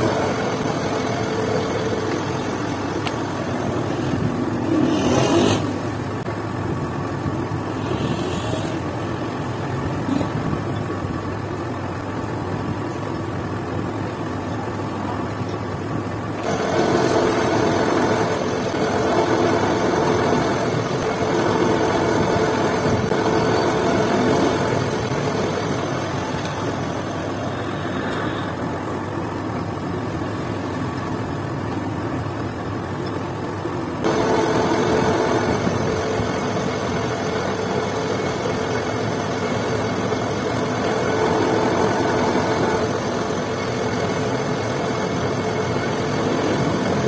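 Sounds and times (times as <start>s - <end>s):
metal lathe cutting thread: 16.4s - 27.0s, 34.0s - 44.6s.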